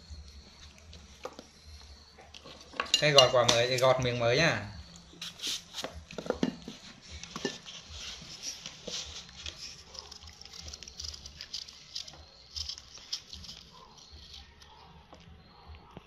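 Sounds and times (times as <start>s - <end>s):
knife cutting and peeling apple: 4.9s - 15.4s.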